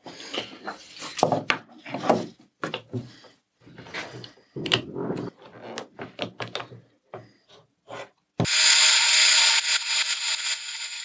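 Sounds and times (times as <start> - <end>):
plywood knocking and scraping: 1.1 - 8.1.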